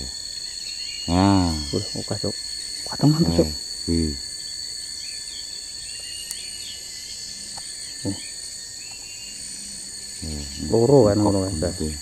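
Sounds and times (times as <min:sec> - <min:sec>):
faint bird chirps: 0:00.0 - 0:12.0
insects droning: 0:00.0 - 0:12.0.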